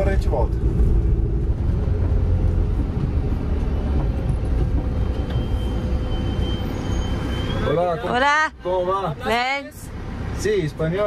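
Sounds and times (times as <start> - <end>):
van body rattling: 0.0 - 6.8
van cabin low rumble: 0.0 - 6.9.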